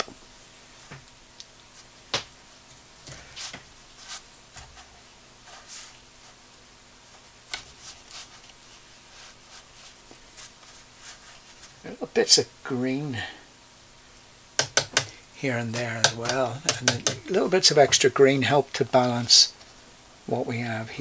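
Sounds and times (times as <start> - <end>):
brush strokes on paper: 3.3 - 6.4, 7.6 - 11.9
light taps: 16.0 - 17.4.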